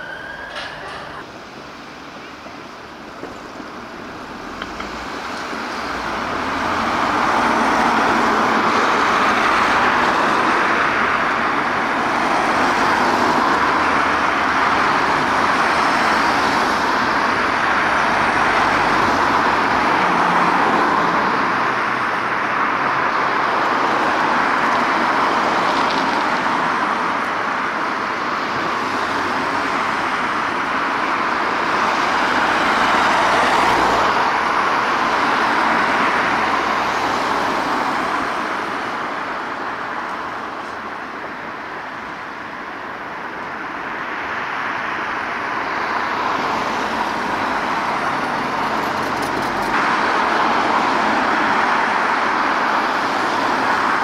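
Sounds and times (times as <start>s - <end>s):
road traffic passing: 0.0s - 54.0s.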